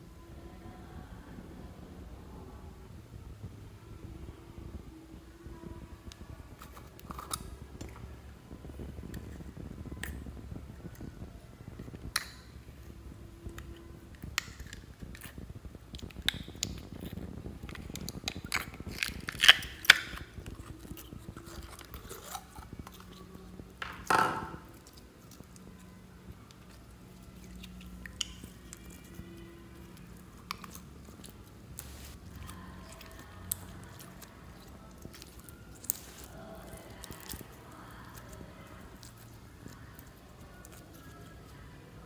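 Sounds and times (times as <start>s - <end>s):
wet slime squelch: 24.7s - 42.0s.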